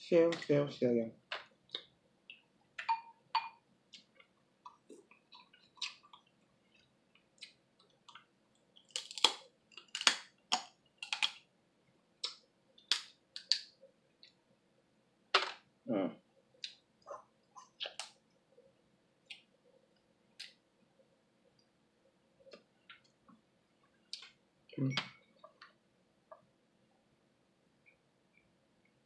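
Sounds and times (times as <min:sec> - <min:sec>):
chewing: 0:03.9 - 0:11.4
crab shell cracking: 0:08.8 - 0:11.4, 0:12.2 - 0:13.8.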